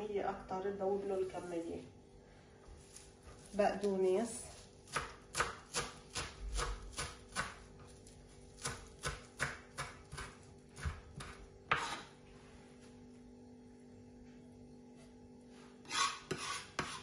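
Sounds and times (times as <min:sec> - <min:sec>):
knife chopping on wooden board: 0:04.9 - 0:07.6, 0:08.6 - 0:12.1, 0:15.9 - 0:17.0.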